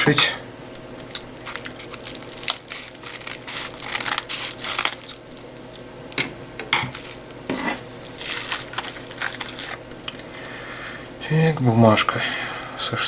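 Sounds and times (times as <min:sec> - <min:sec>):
scissors cutting plastic: 0:01.0 - 0:05.8, 0:06.9 - 0:10.2
plastic crinkling: 0:01.0 - 0:05.9, 0:06.9 - 0:10.4.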